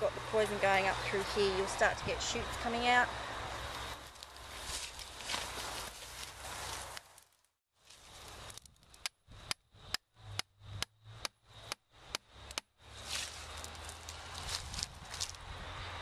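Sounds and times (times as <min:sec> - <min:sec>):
rustling in grass: 0:03.5 - 0:08.7, 0:13.0 - 0:15.4.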